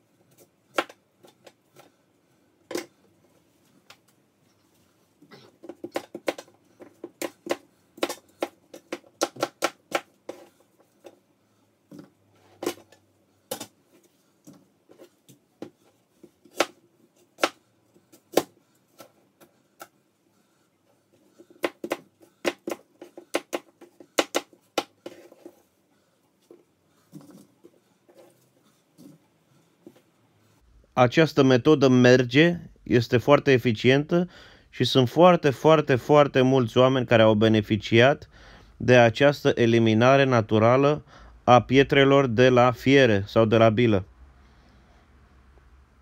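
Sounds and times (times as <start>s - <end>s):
knife chopping on plastic board: 0.7s - 1.9s, 5.6s - 11.2s, 11.9s - 12.9s, 16.4s - 16.8s, 17.4s - 19.1s, 21.3s - 25.6s.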